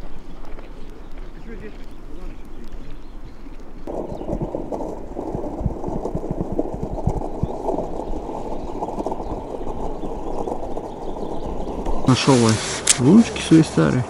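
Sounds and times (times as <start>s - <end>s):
footsteps on snowy ice: 0.0s - 4.1s.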